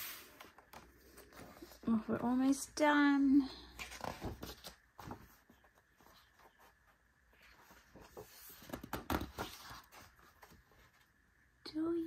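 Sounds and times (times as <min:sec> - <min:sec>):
page flipping: 0:03.8 - 0:06.6, 0:07.4 - 0:10.6
paper pages rustling: 0:03.8 - 0:11.1.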